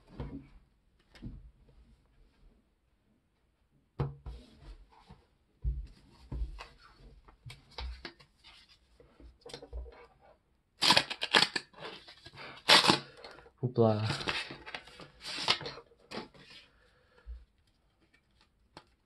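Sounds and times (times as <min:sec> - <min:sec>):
paper pack tearing and crinkling: 0:10.8 - 0:13.2, 0:14.0 - 0:15.8.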